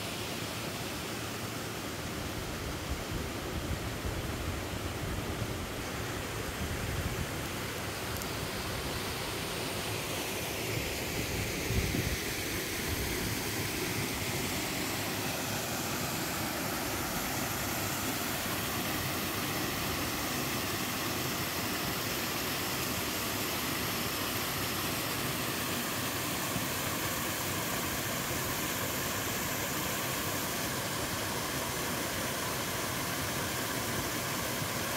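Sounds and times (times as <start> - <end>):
water rushing over rock: 5.9 - 34.9.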